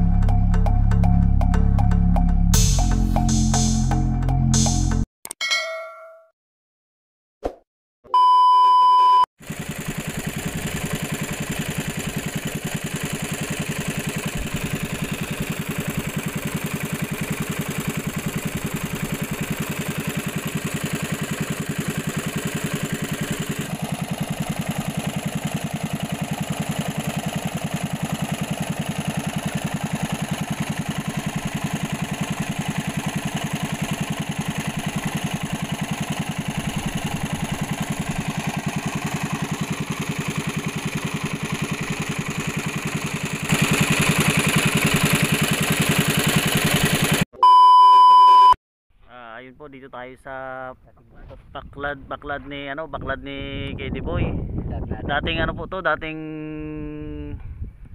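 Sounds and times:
small engine running: 9.4 - 47.3.

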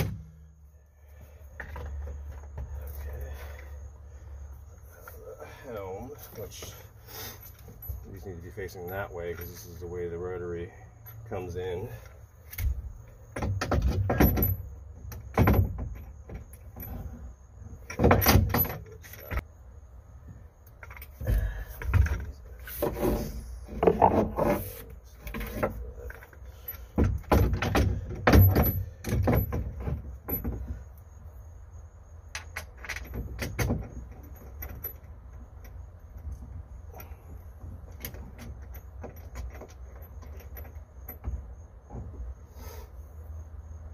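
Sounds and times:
metal tools clinking and rattling: 4.8 - 10.4, 11.0 - 17.2, 32.4 - 41.4.

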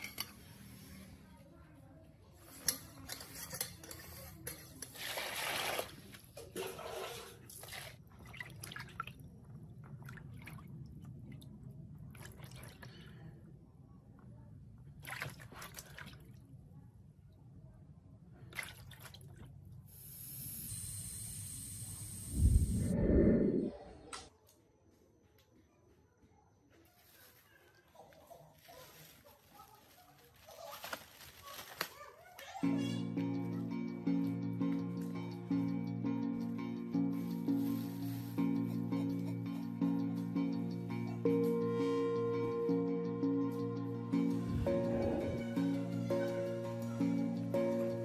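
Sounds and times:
water sloshing and splashing: 4.9 - 13.1, 14.9 - 16.5, 18.5 - 19.6.

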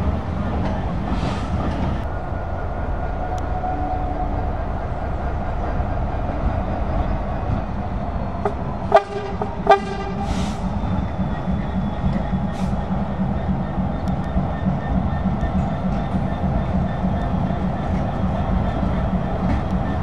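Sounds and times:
diesel locomotive rumbling: 0.0 - 20.0
locomotive horn toots: 8.4 - 10.7.

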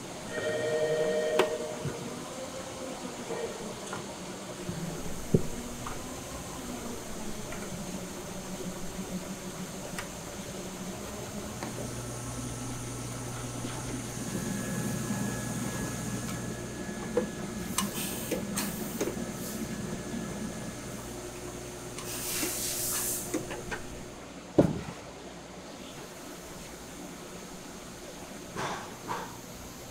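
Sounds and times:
low machine hum: 0.0 - 22.3, 23.1 - 24.4.

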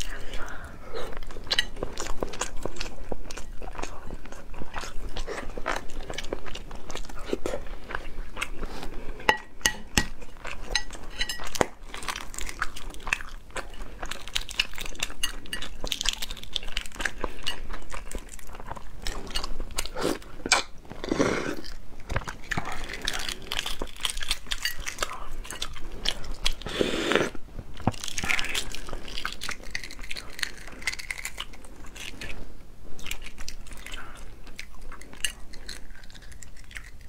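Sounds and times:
chewing and biting: 10.0 - 32.4, 33.0 - 37.0.

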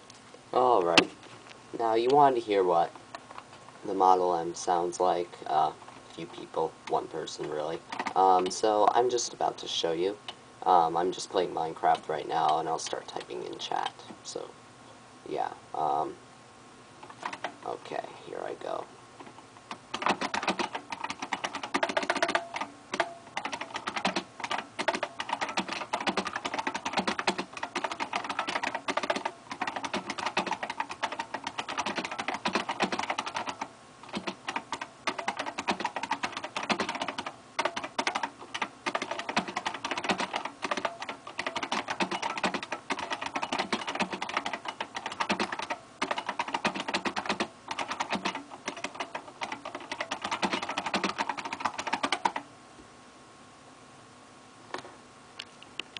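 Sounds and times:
keyboard typing clicks: 6.9 - 8.6, 17.0 - 17.6, 19.2 - 52.4.

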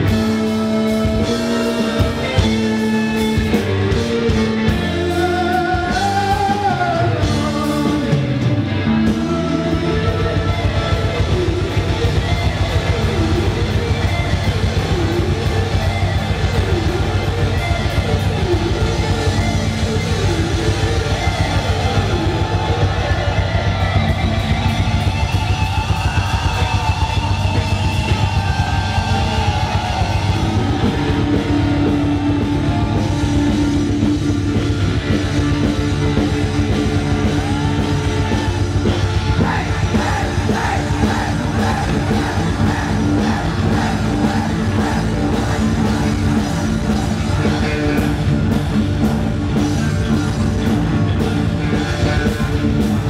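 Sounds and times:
person singing: 0.0 - 12.2
drum kit: 0.0 - 53.0
guitar: 0.0 - 53.0.

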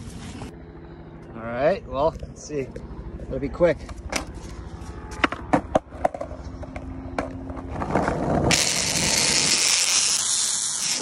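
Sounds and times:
skateboard wheels rolling on asphalt: 4.4 - 10.1.

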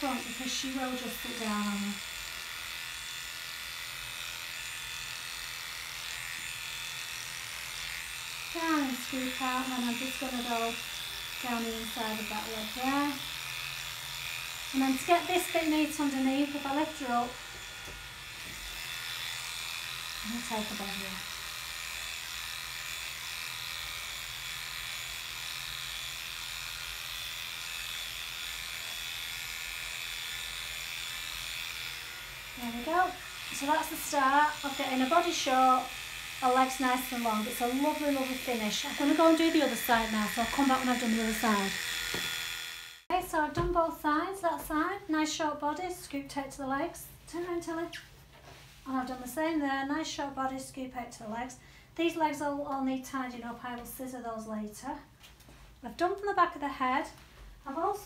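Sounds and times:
electric clippers buzzing: 0.0 - 43.1.

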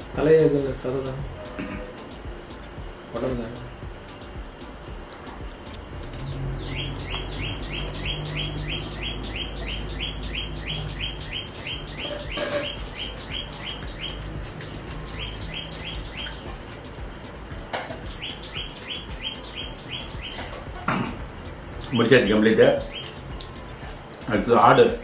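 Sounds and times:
bird chirping: 5.7 - 25.0.

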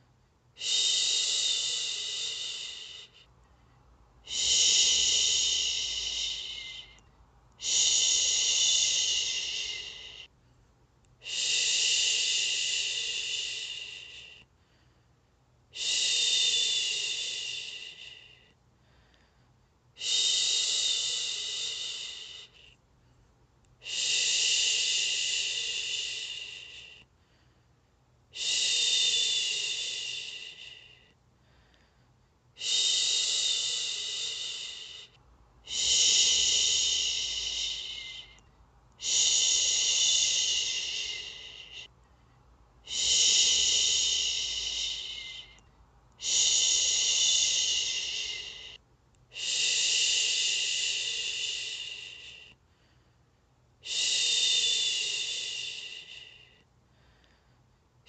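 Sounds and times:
woman shushing: 4.3 - 7.0, 7.6 - 10.2, 35.7 - 38.4, 39.0 - 41.9, 42.9 - 45.6, 46.2 - 48.8.

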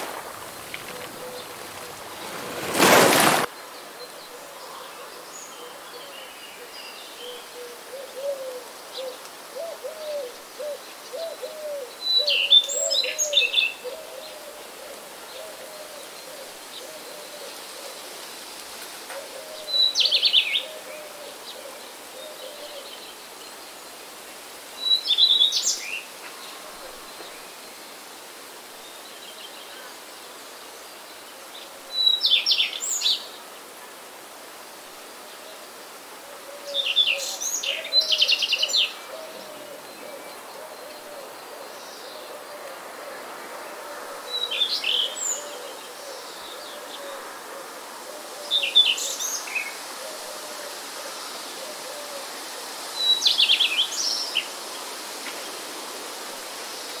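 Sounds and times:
low bird calls: 0.0 - 18.1
faint hiss: 0.0 - 57.0.

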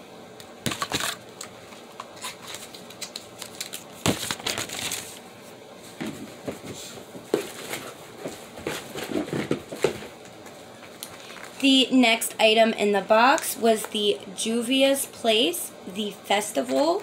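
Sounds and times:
packaging rustling and crinkling: 2.2 - 5.2, 10.8 - 11.6.

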